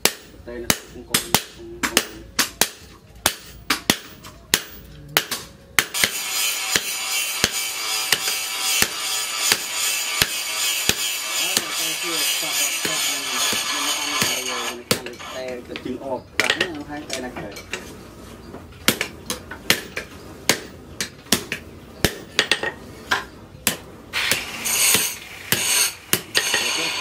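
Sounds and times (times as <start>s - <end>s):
hammer striking hot steel on anvil: 0.0s - 15.3s, 21.3s - 27.0s
steady hiss: 24.1s - 27.0s.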